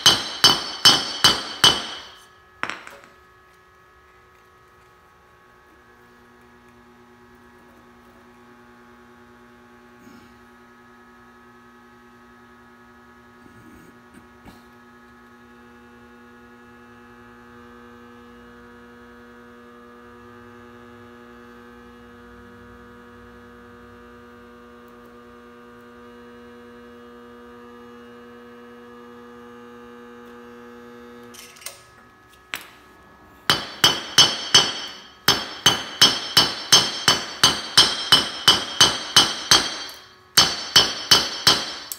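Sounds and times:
hammer striking hot metal on anvil: 0.0 - 3.1, 33.5 - 41.9
induction heater humming: 0.0 - 12.0, 23.8 - 41.9.

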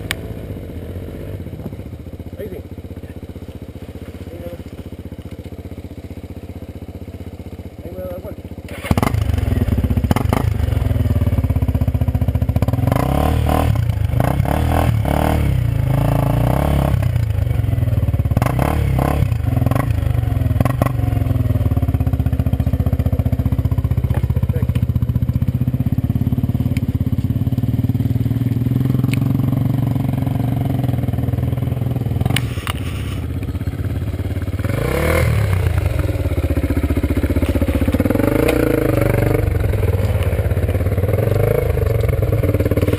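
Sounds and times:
quad engine under load: 0.0 - 42.9
dirt bike engine revving: 7.8 - 24.8, 27.4 - 42.9.

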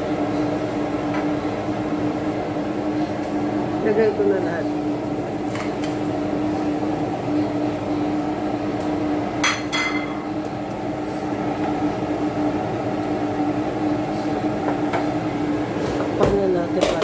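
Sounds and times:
kitchen hum: 0.0 - 17.0
kitchenware clinking: 9.4 - 10.3.

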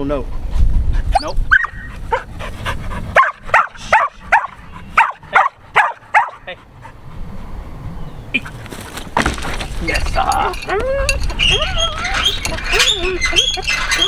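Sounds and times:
dog barking and yipping: 1.2 - 2.3, 3.1 - 6.5.

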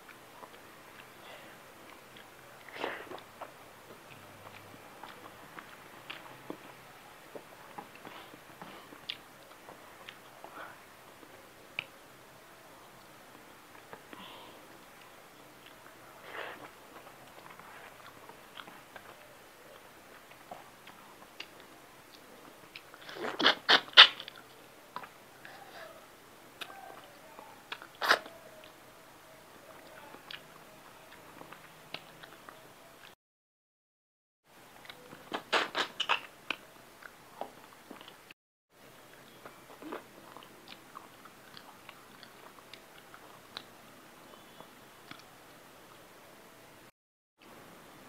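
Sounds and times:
crunching mouth smacks: 20.1 - 24.4, 27.7 - 28.3, 34.8 - 38.2
person chewing and biting: 34.8 - 38.2.

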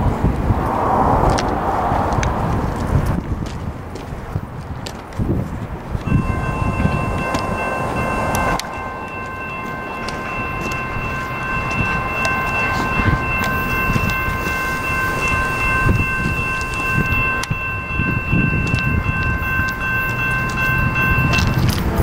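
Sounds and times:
freight train rumbling: 0.0 - 22.0
high-pitched whine: 6.0 - 21.8.

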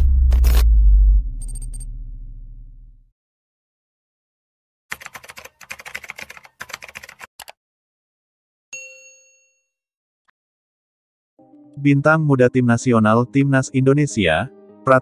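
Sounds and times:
keyboard typing clicks: 4.9 - 7.6
notification bell ding: 8.8 - 9.7.

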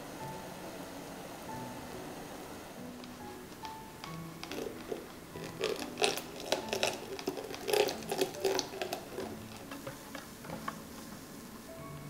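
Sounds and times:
milk pouring: 3.0 - 11.6
whisk stirring in glass bowl: 3.6 - 11.2.

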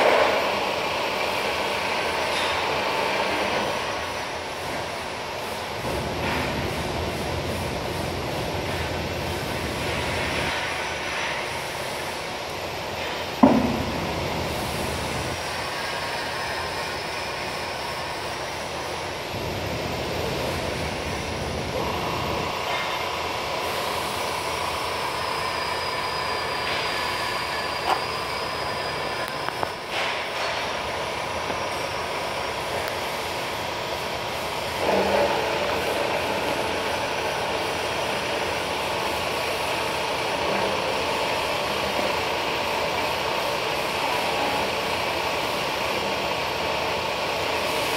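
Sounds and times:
steady high tone: 20.2 - 34.3.

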